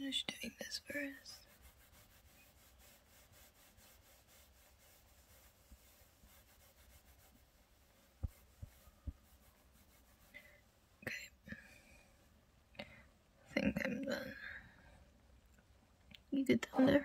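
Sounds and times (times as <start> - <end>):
soft rubbing of hair lathering: 0.0 - 10.8.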